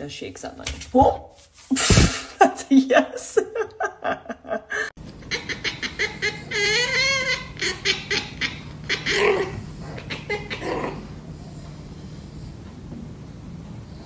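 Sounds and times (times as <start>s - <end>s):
person laughing: 1.7s - 8.5s.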